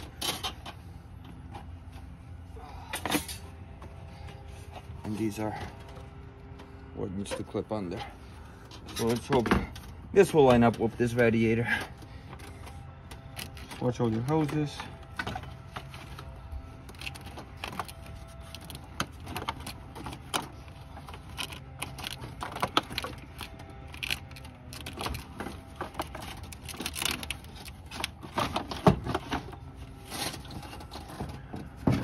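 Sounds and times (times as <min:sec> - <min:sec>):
low hum: 0:00.0 - 0:32.0
plastic fan shroud rattling: 0:16.9 - 0:29.6.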